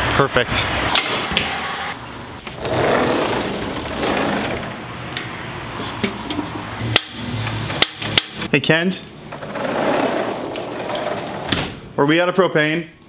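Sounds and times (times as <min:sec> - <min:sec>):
sliding door rolling open: 0:01.0 - 0:05.0, 0:09.3 - 0:11.8.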